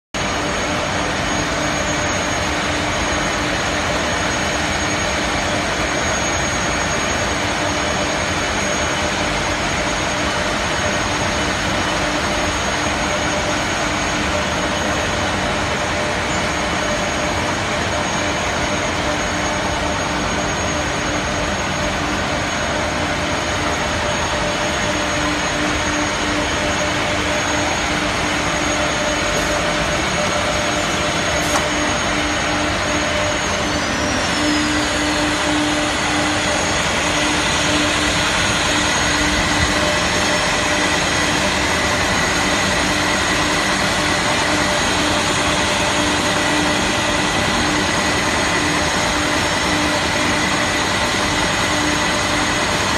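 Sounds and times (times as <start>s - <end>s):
pulsing machine whine: 0.2s - 52.9s.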